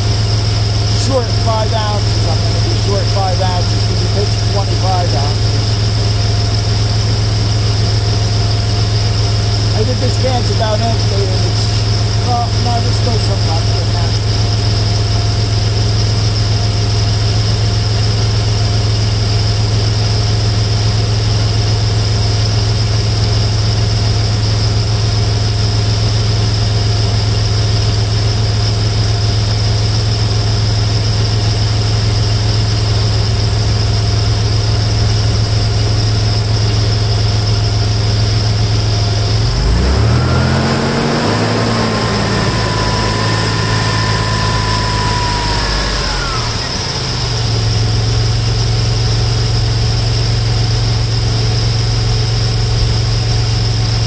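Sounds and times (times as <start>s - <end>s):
faint whine: 0.0s - 18.0s, 29.4s - 39.6s
car engine idling: 0.0s - 54.0s.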